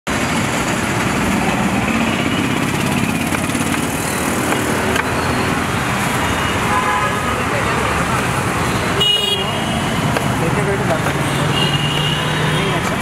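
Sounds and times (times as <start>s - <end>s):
street traffic noise: 0.0s - 13.0s
engine running: 0.1s - 6.0s.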